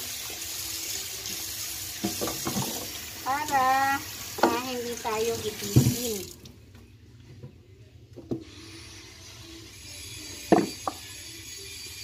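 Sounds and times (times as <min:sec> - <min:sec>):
kitchenware knocking at a sink: 0:02.0 - 0:03.0.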